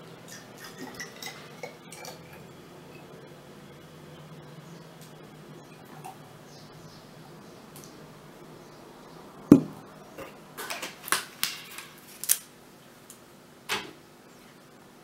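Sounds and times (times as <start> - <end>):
bottle knocking on table: 9.5 - 9.8.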